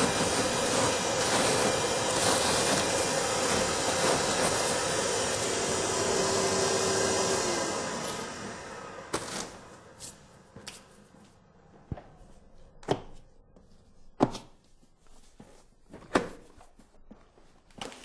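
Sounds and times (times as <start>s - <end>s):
vacuum motor winding down: 0.0s - 9.8s.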